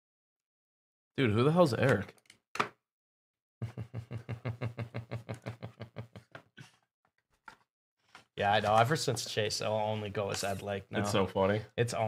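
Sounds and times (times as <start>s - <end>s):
man laughing: 3.6s - 6.5s.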